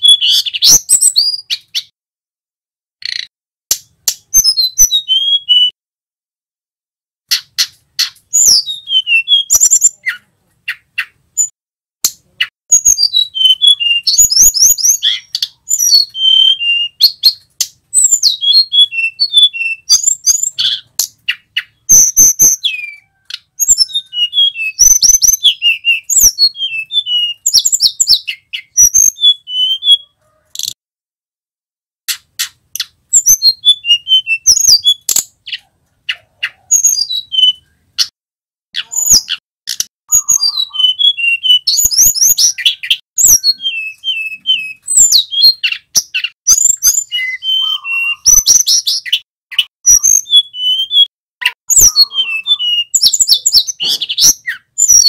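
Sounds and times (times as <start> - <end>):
bird singing whistled notes: 0.0 - 1.9, 4.1 - 5.8, 7.3 - 11.6, 12.7 - 30.7, 32.4 - 38.1, 38.8 - 55.0
sharp bird clicks: 3.0 - 4.5, 7.3 - 8.5, 32.1 - 33.0.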